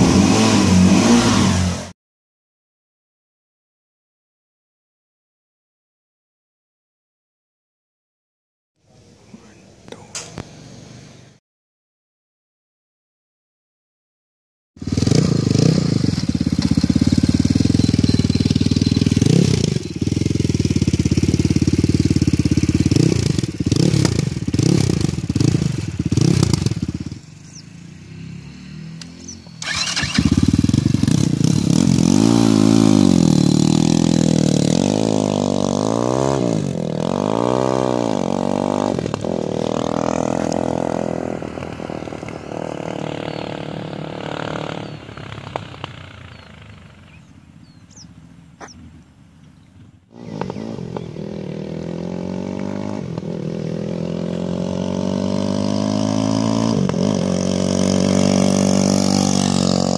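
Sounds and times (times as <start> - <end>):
motorcycle engine revving: 0.0 - 2.0, 14.8 - 49.0, 49.8 - 59.9.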